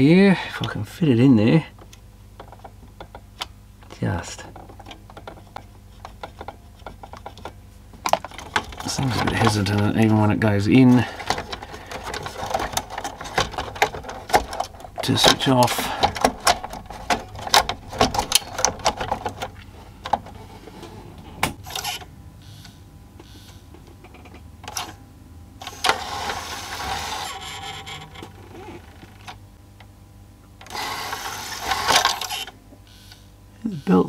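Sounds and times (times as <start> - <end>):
drive belt slipping: 4.5 - 22.0, 25.6 - 29.3
disc tray mechanism clicking: 4.6 - 22.1, 30.6 - 32.5
small loading motor running: 19.8 - 23.7, 25.6 - 29.4, 30.6 - 34.0.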